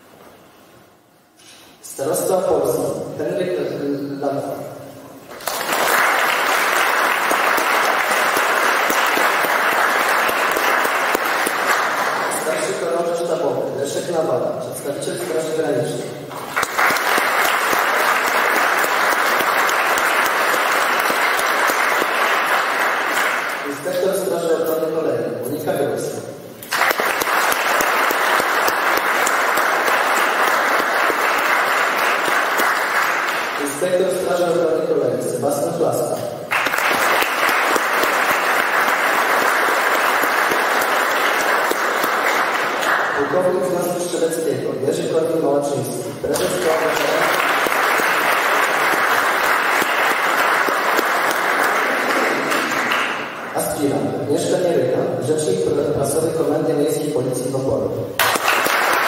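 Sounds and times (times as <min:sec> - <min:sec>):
audience applauding: 0:05.3 - 0:12.8, 0:16.3 - 0:23.8, 0:26.6 - 0:34.2, 0:36.5 - 0:43.6, 0:46.3 - 0:53.5, 0:58.2 - 0:59.0.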